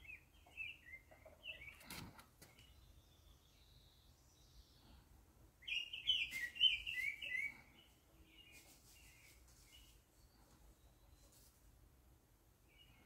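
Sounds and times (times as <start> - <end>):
songbird chirping: 0.0 - 13.0.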